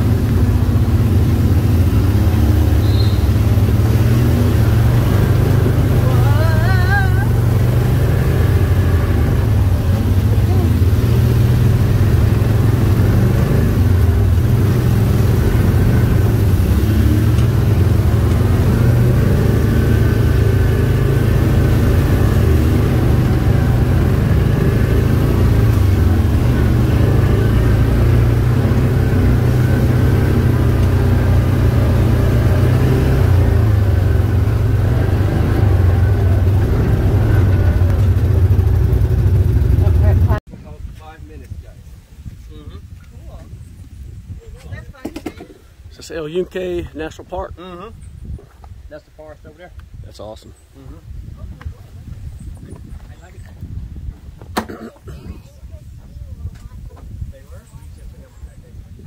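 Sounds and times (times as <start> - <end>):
vehicle engine droning: 0.0 - 40.5.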